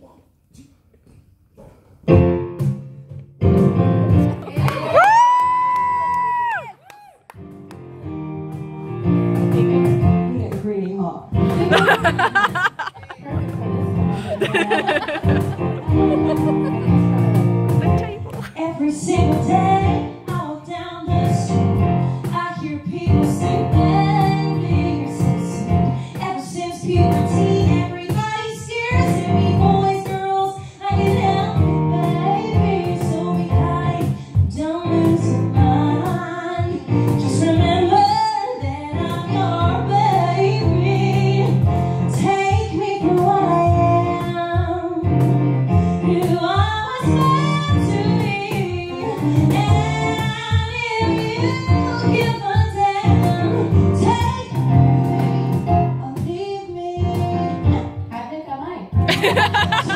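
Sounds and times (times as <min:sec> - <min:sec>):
instrumental accompaniment: 0:07.4 - 0:22.4, 0:59.0 - 0:59.9.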